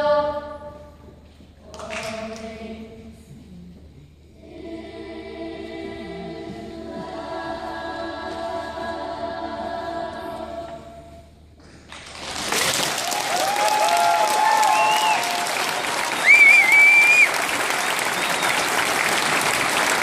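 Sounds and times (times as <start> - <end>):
children's choir singing: 0.0 - 1.0, 1.6 - 3.4, 4.2 - 11.4
audience applause: 11.9 - 20.0
audience whooping: 12.7 - 20.0
loud whistle: 14.3 - 18.8.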